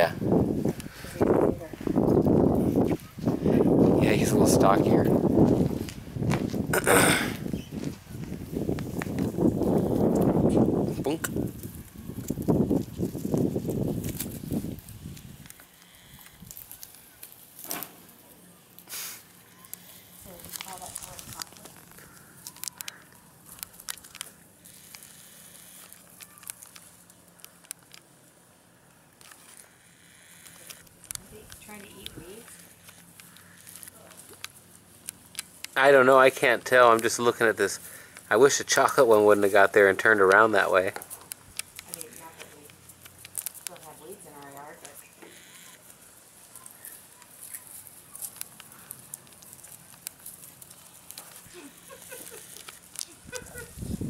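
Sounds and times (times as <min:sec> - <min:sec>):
shuffling through dry grass: 0:00.0 - 0:06.7, 0:07.3 - 0:27.4, 0:45.9 - 0:54.0
low outdoor hiss: 0:14.6 - 0:54.0
small clicks: 0:19.6 - 0:28.1, 0:46.6 - 0:53.2.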